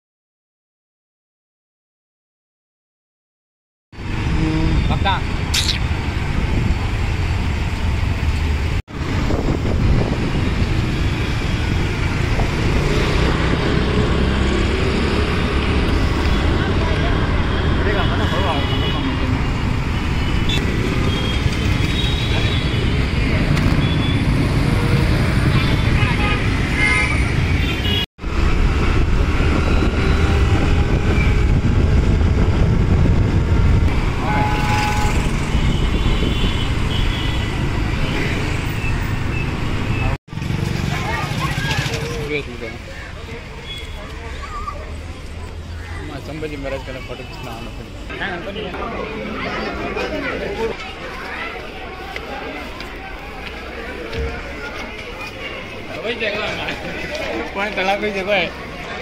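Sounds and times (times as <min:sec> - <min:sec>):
road traffic noise: 0:03.9 - 0:59.0
wind rush on microphone: 0:05.8 - 0:07.1, 0:08.9 - 0:12.5, 0:28.2 - 0:36.9.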